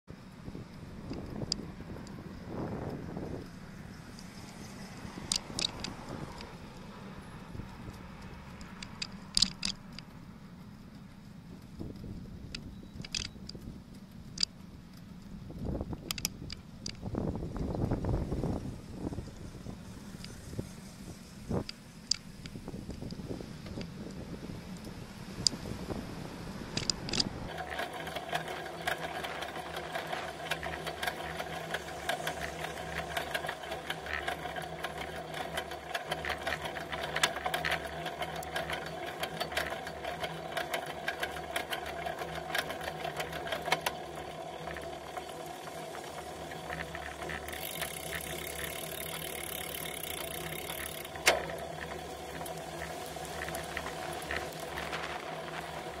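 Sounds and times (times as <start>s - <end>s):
steady bicycle riding hum: 0.0s - 56.0s
camera mount rattling: 5.3s - 6.5s, 8.7s - 10.1s, 13.0s - 13.6s, 26.8s - 31.6s
sharp click: 8.6s - 10.1s.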